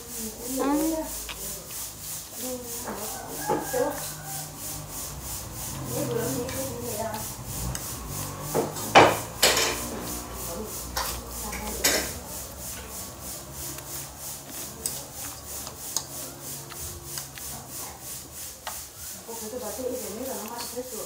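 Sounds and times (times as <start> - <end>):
noodle slurping: 0.0 - 19.2
chewing with small clicks: 0.6 - 2.4, 3.6 - 4.5, 5.4 - 8.8, 9.8 - 12.6, 13.8 - 17.7, 20.1 - 20.8.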